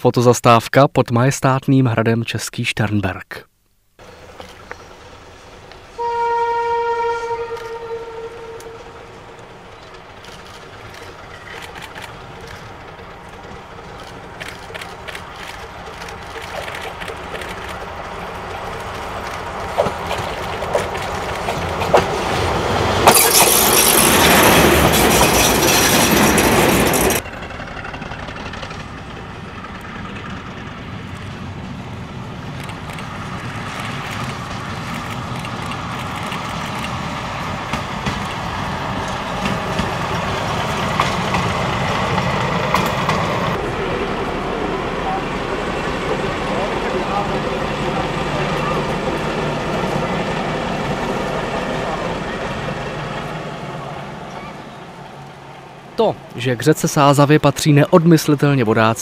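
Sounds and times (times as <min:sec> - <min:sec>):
diesel railcar passing: 0:04.0 - 0:59.0
train wheels clacking: 0:07.5 - 0:31.9, 0:32.5 - 0:44.2.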